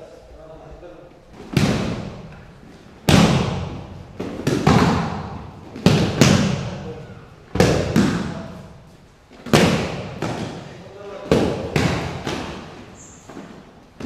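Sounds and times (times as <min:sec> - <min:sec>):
bodies thudding on foam mat: 0:01.4 - 0:06.8, 0:07.5 - 0:08.4.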